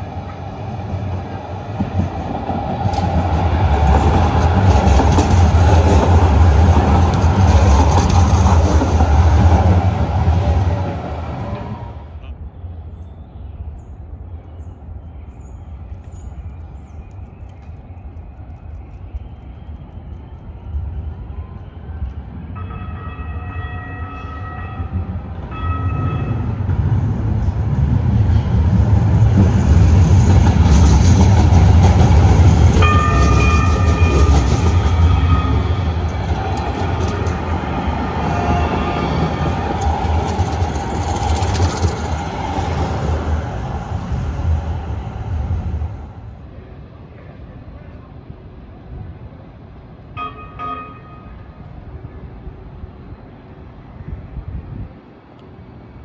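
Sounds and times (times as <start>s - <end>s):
light rail train rumbling past: 0.0s - 56.0s
train horn blasts: 22.6s - 26.5s, 38.1s - 39.6s, 50.1s - 51.6s.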